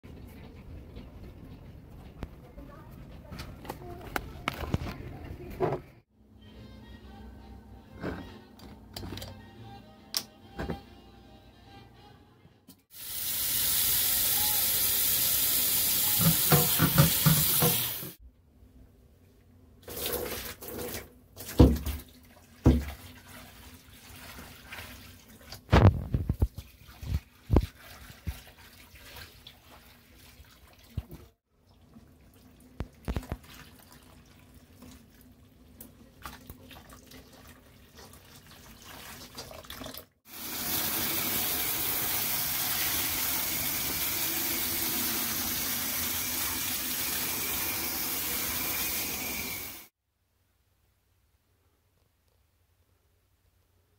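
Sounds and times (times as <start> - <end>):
tap water splashing on plastic: 16.2 - 17.9, 19.9 - 23.1, 25.4 - 29.3, 32.8 - 33.6.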